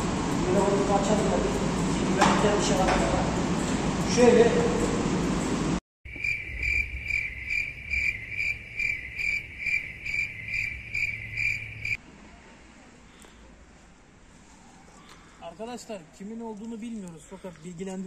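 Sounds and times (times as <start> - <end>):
cricket chirping: 6.1 - 12.0
faint outdoor background: 6.1 - 18.0.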